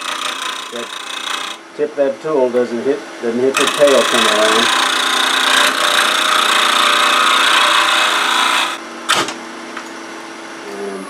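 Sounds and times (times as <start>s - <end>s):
gouge scraping spinning wood: 0.0s - 1.6s, 3.6s - 8.8s
wood lathe running: 0.0s - 1.6s, 3.5s - 8.8s.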